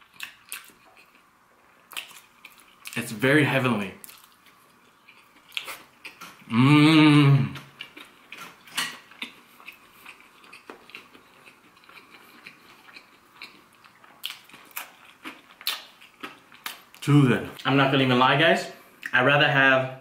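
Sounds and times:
wet chewing clicks and smacks: 0.0 - 1.2, 7.6 - 17.0
man humming mmm of enjoyment: 6.5 - 7.7.

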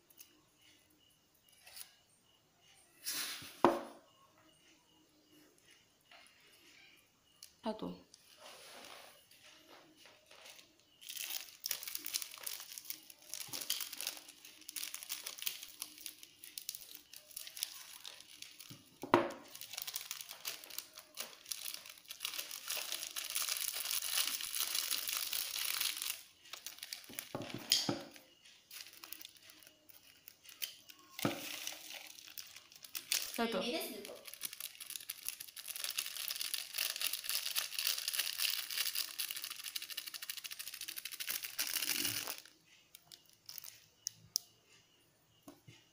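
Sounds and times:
foil sachets crinkling: 10.3 - 43.8.

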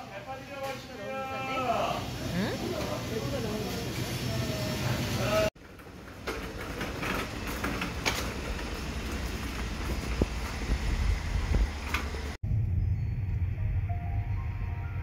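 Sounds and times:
cart wheels rumbling on asphalt: 5.6 - 12.4.

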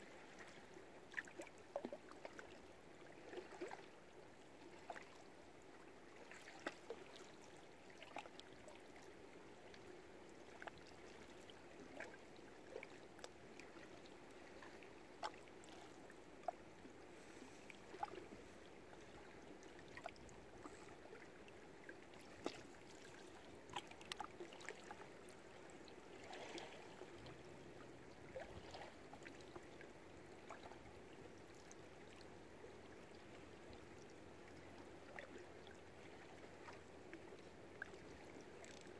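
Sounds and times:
water lapping: 0.0 - 38.9.

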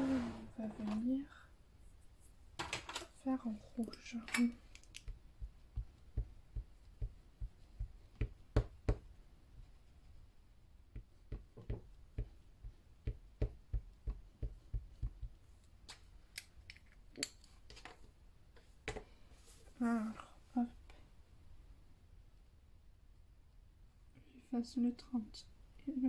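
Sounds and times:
stamps knocking on paper: 5.0 - 9.1, 10.9 - 15.4.

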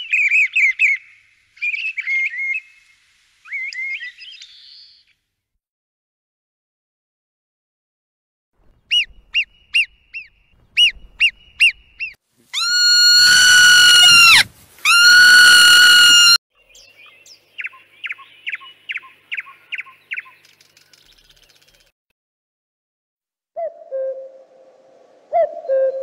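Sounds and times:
quick falling squeaks: 8.7 - 16.4.

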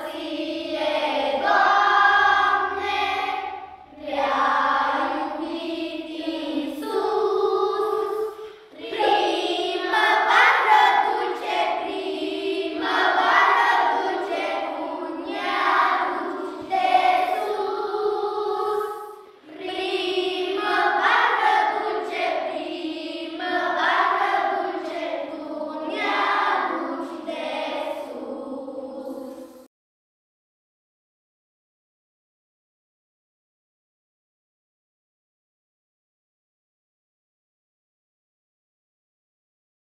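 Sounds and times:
children's choir singing hymn: 0.0 - 29.7.

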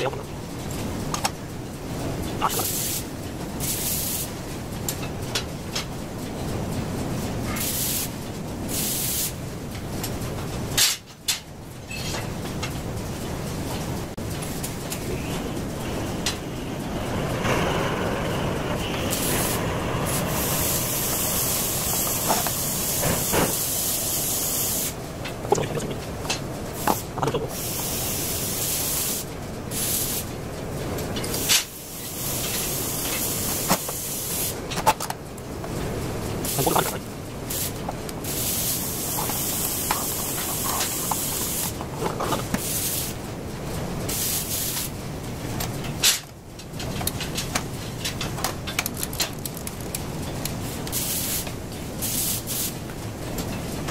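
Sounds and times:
steady hiss: 0.0 - 53.9
clicks and knocks of handled parts: 45.6 - 51.6.

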